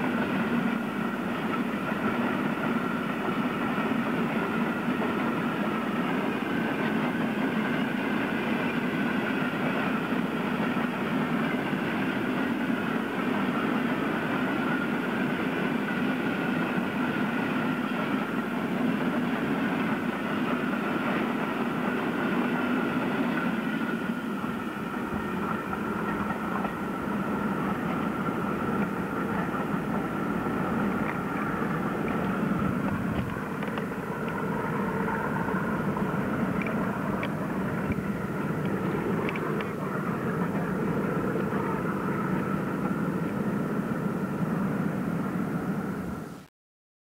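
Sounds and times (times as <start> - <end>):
freight train rumbling: 0.0 - 46.5
faint clicks: 36.6 - 39.8.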